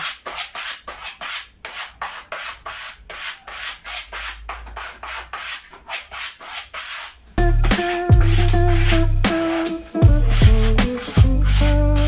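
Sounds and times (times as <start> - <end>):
rubbing strokes on wallpaper: 0.0 - 12.0.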